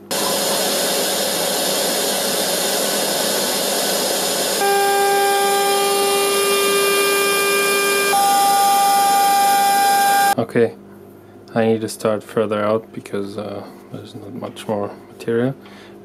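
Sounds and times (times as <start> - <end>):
router spindle high hiss: 0.0 - 10.4
whine of cutter through foam: 0.0 - 10.4.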